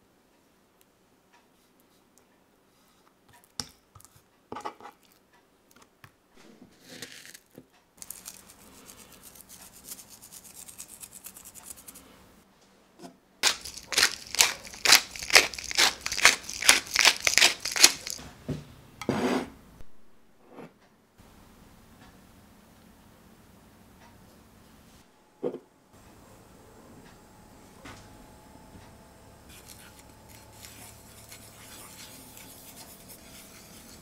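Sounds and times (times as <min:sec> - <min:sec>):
spice mill grinding: 0:08.0 - 0:12.0, 0:13.4 - 0:18.2, 0:29.5 - 0:34.0.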